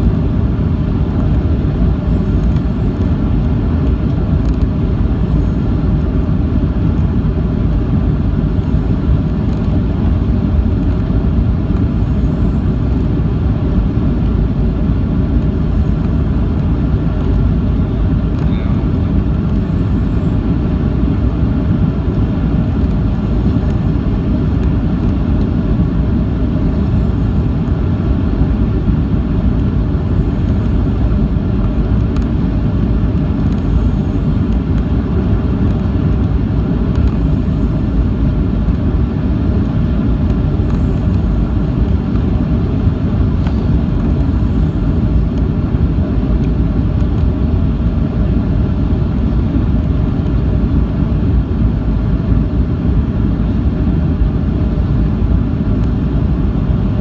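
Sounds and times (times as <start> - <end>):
jet engines and airflow rumble: 0.0 - 57.0
faint whining tones: 8.2 - 39.1.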